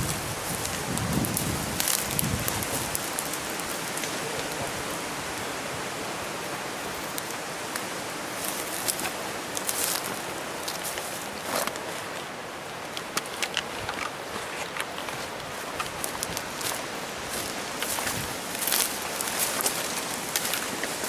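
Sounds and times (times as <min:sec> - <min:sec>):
leaves and twigs crackling: 0:00.0 - 0:21.0
steady hiss: 0:00.0 - 0:21.0
footsteps through undergrowth: 0:07.8 - 0:21.0.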